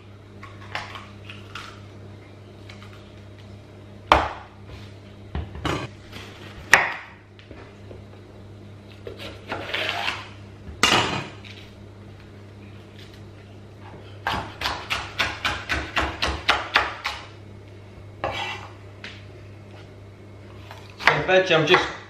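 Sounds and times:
knife chopping on wooden board: 14.2s - 17.3s.

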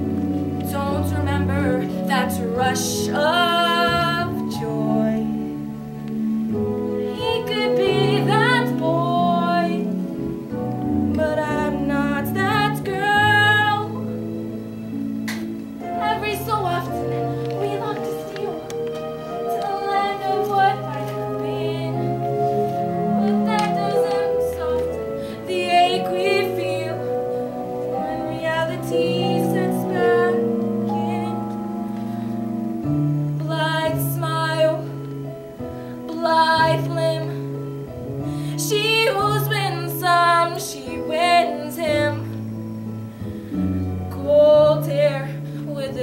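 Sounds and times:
instrumental accompaniment: 0.0s - 46.0s
woman singing: 0.6s - 5.5s, 7.1s - 10.0s, 11.1s - 14.1s, 15.8s - 27.2s, 27.9s - 31.6s, 33.4s - 35.0s, 36.1s - 37.5s, 38.6s - 42.4s, 44.1s - 46.0s.

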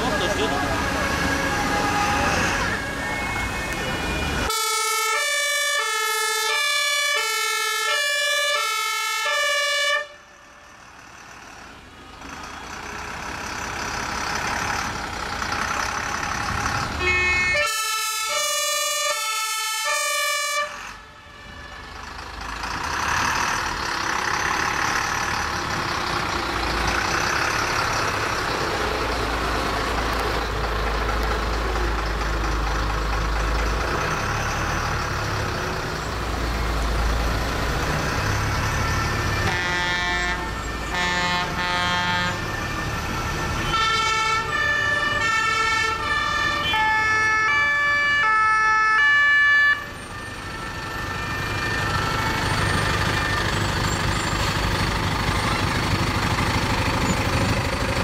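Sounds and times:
diesel trucks driving past: 0.0s - 58.0s
fire engine two-tone horn: 0.7s - 10.4s, 17.0s - 22.0s, 38.5s - 53.6s.

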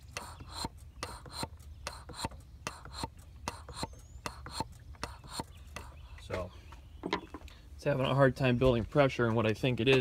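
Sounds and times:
pressure cap ticking and spitting: 0.0s - 6.0s.

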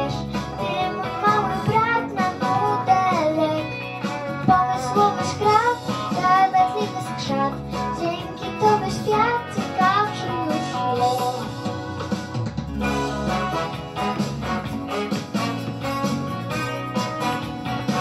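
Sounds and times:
girl singing into microphone: 0.0s - 11.5s
backing music with guitar: 0.0s - 18.0s.

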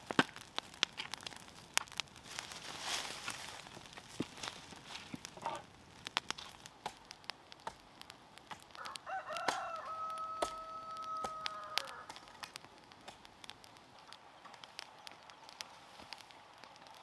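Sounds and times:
rooster crowing: 8.7s - 12.2s.

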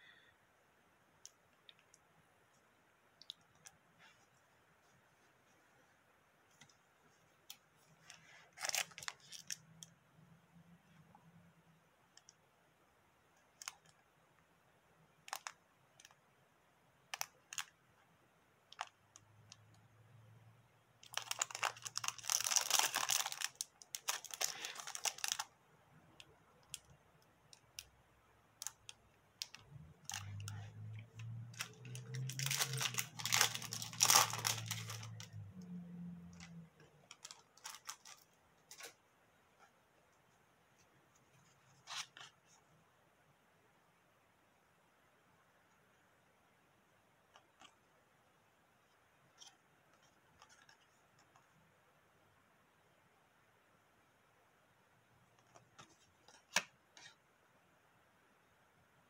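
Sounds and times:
foil wrapper crinkling and tearing: 8.5s - 9.6s, 21.0s - 25.5s, 31.5s - 35.3s, 37.1s - 38.9s.

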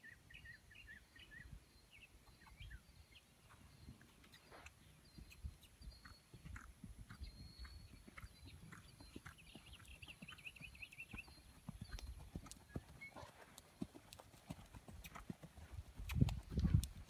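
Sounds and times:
horse hooves cantering on sand: 4.3s - 17.0s.

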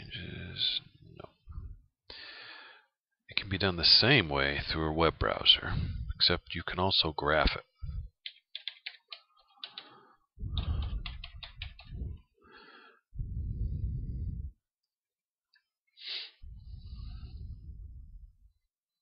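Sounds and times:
breathing onto a microphone: 1.5s - 2.9s, 9.6s - 11.2s, 11.8s - 14.6s, 16.0s - 18.1s
computer keyboard keystrokes: 8.2s - 10.0s, 10.6s - 12.0s.

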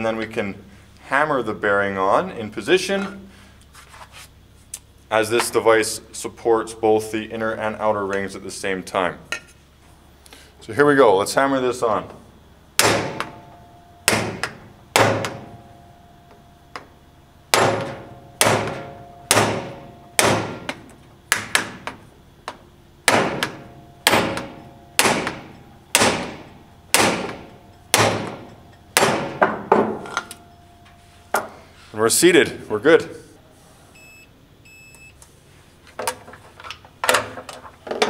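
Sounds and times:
hammer striking metal: 17.5s - 20.8s, 23.1s - 30.6s.

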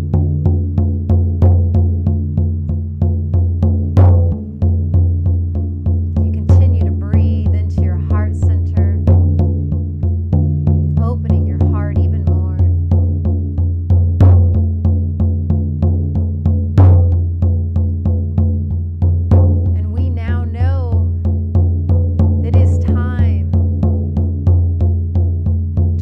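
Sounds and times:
frame drum struck with beater: 0.0s - 26.0s.

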